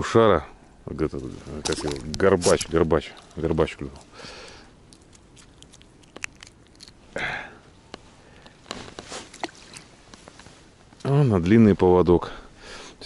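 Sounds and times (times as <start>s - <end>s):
fishing tackle clicks and rustles: 1.2s - 4.1s, 8.4s - 10.5s.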